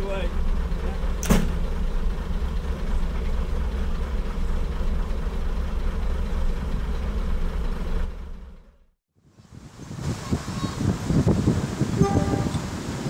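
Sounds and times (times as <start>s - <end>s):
railcar diesel engine idling: 0.0s - 9.0s, 11.9s - 13.0s.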